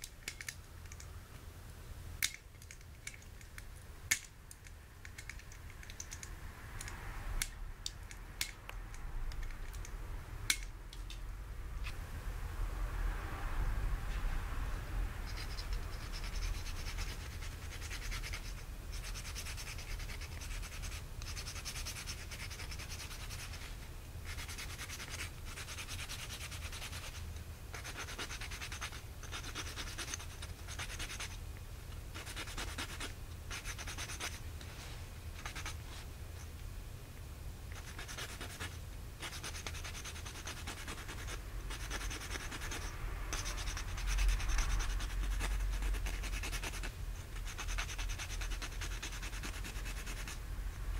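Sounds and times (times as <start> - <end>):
nail file rasping on dog claws: 15.3 - 23.6, 24.3 - 31.4, 32.2 - 34.4, 35.4 - 35.8, 37.7 - 50.4.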